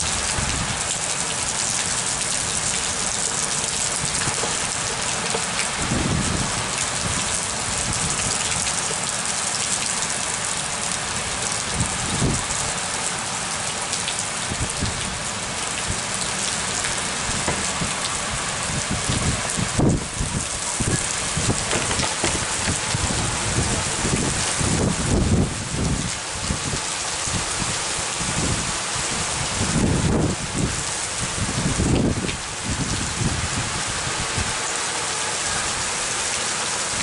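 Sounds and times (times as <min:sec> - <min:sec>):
heavy rain pouring: 0:00.0 - 0:37.0
low thumps: 0:17.4 - 0:18.0.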